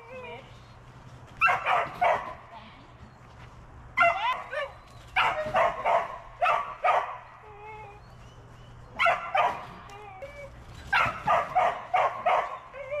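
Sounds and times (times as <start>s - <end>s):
dog barking: 1.4s - 2.4s, 4.0s - 7.3s, 9.0s - 9.7s, 10.9s - 12.7s.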